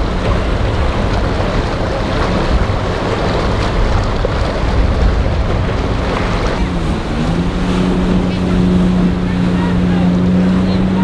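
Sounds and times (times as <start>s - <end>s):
boat engines running: 0.0s - 11.0s
waves splashing: 0.0s - 11.0s
wind buffeting microphone: 0.0s - 11.0s.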